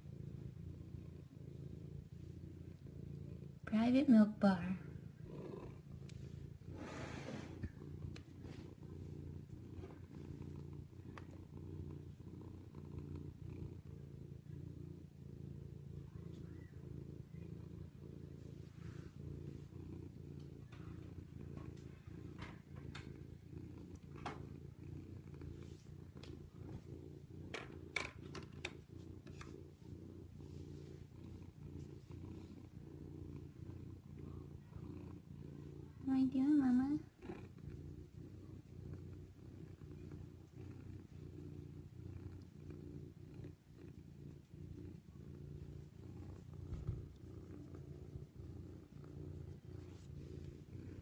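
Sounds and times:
cat purring: 0.0 - 51.0
faint clicks: 7.6 - 8.3, 20.4 - 23.2.

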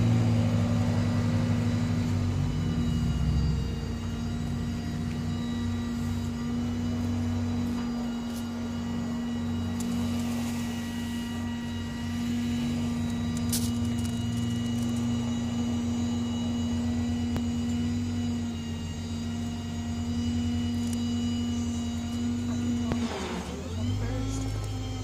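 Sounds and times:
vehicle engine idling: 0.0 - 17.6.

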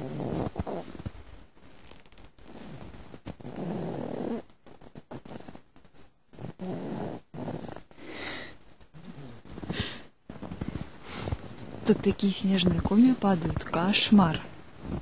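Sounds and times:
slow noisy breaths: 7.8 - 11.8.

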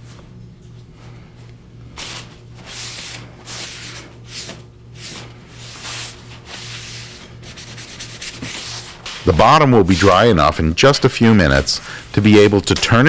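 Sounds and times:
cloth rubbing on wood: 2.0 - 10.2.

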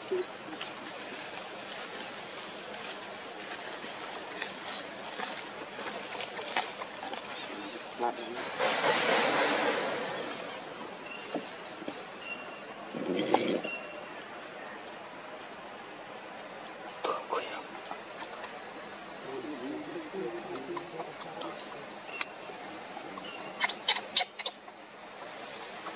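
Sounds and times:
insects droning: 0.0 - 25.9.

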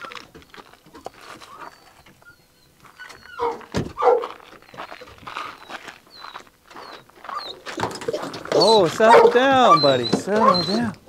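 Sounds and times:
dog yelping and whining: 1.4 - 4.3, 6.1 - 11.0
dull thump: 3.6 - 4.1.

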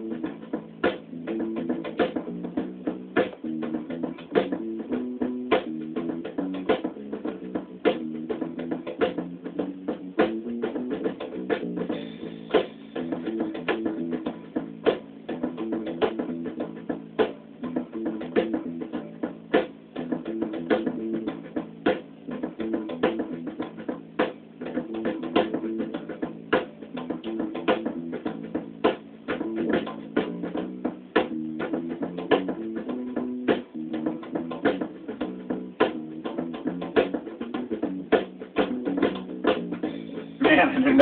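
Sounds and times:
band track over speakers: 0.0 - 41.0.

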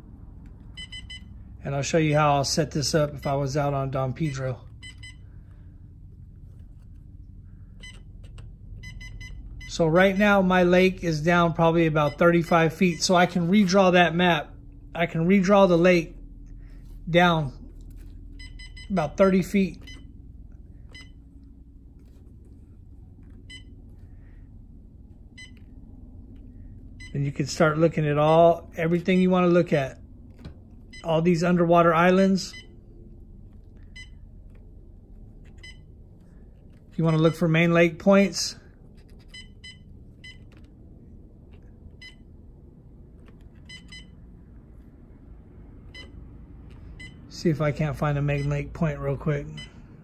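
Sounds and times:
low steady hum: 0.0 - 50.0
electronic key-press beeps: 0.8 - 1.3, 4.8 - 5.2, 7.8 - 9.7, 19.8 - 20.1, 20.9 - 21.2, 23.4 - 23.7, 25.4 - 25.7, 35.6 - 35.8, 43.6 - 44.2, 45.9 - 46.2.

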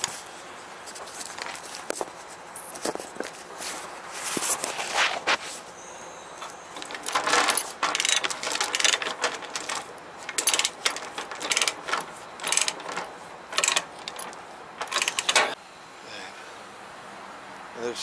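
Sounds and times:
ratchet chain binder clicking: 6.8 - 15.6.

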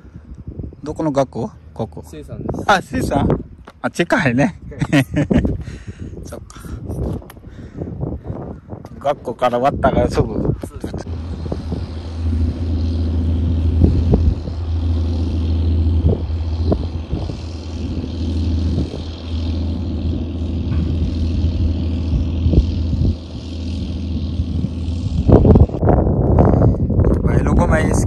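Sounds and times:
boat engine passing: 9.3 - 26.5.

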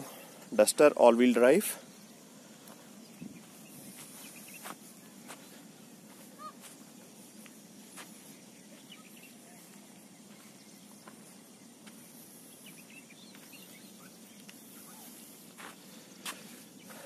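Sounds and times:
bird chirps: 1.8 - 7.4, 8.1 - 15.6.

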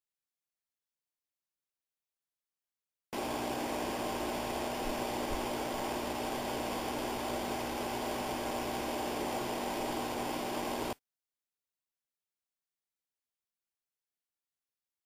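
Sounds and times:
low electrical hum: 3.2 - 11.0
steady hiss: 3.2 - 11.0.

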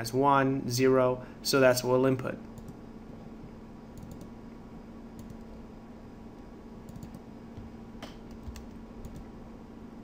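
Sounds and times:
low electrical hum: 0.0 - 10.0
computer keyboard keystrokes: 4.0 - 4.3, 5.2 - 5.5, 6.9 - 7.2, 8.0 - 9.3.

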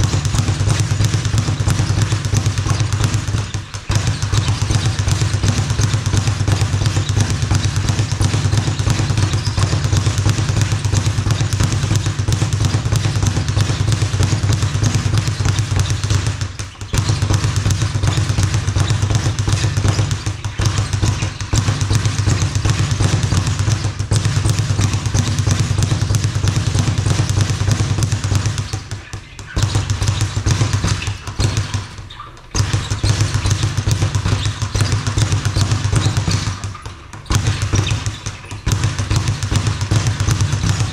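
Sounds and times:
speed bag punched rapidly: 0.0 - 40.9.

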